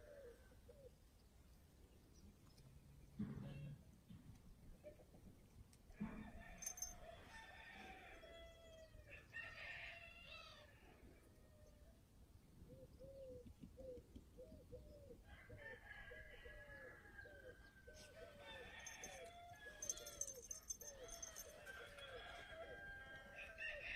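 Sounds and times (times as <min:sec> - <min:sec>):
rooster crowing: 0:06.2 - 0:10.8, 0:15.2 - 0:23.9.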